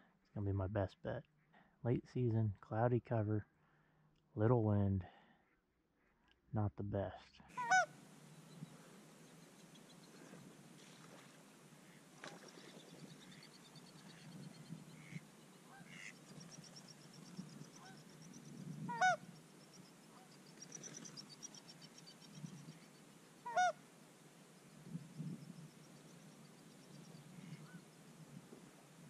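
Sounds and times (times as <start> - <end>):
goose honks: 7.5 - 7.9, 15.0 - 16.2, 18.9 - 19.2, 23.4 - 23.8
distant waterfowl chattering: 7.6 - 8.0, 9.7 - 18.3, 18.9 - 19.3, 23.4 - 23.8, 27.3 - 27.9.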